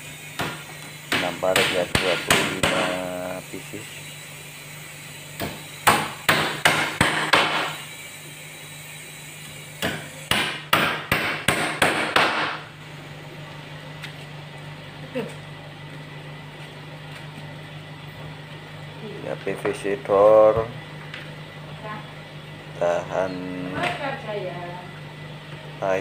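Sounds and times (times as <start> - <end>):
hammer nailing wooden crate: 0.4 - 2.9, 5.4 - 7.7, 9.8 - 12.6.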